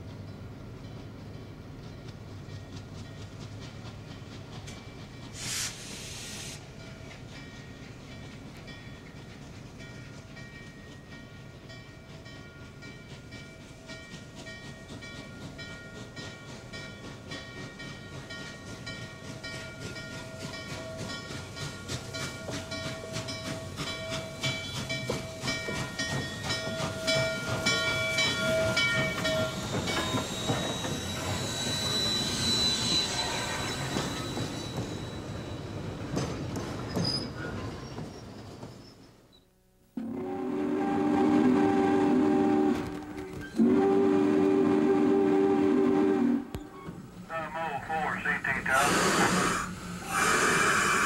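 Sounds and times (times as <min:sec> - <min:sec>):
steam locomotive rolling by: 0:00.0 - 0:51.0
high metallic squeal: 0:28.6 - 0:35.8.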